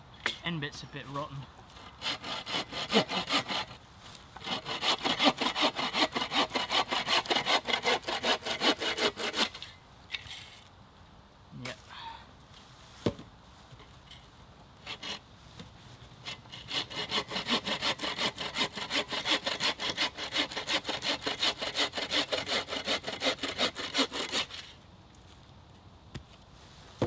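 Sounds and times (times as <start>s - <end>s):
bow saw cutting log: 1.8s - 3.8s, 4.4s - 9.7s, 14.8s - 15.2s, 16.2s - 24.7s.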